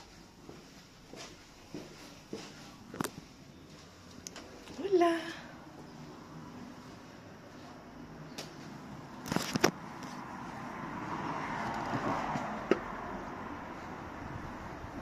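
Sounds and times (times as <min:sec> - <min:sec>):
car passing: 0:05.4 - 0:15.0.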